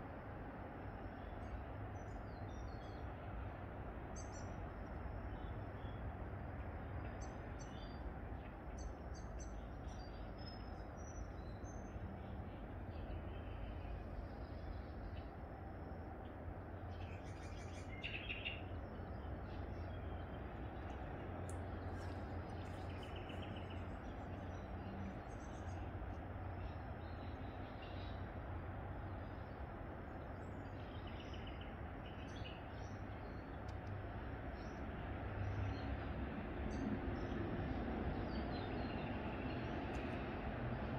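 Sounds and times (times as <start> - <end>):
songbird chirping: 4.1 - 34.9
steady low rumble: 18.6 - 32.1.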